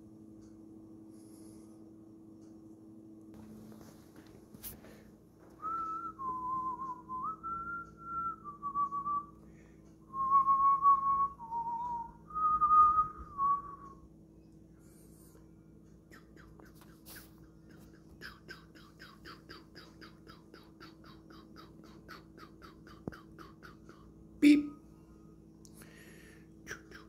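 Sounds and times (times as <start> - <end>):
person whistling a tune: 5.6 - 9.3, 10.1 - 14.0.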